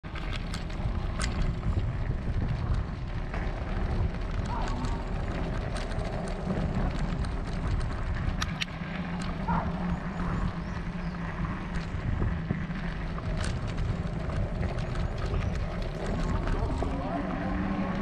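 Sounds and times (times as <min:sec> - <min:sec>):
bicycle tyre noise: 0:00.0 - 0:18.0
wind: 0:00.0 - 0:18.0
sharp clicks: 0:04.4 - 0:09.4.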